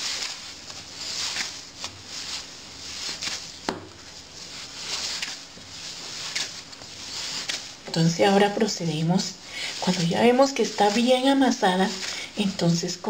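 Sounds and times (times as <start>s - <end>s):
hands kneading dough: 0.0s - 13.0s.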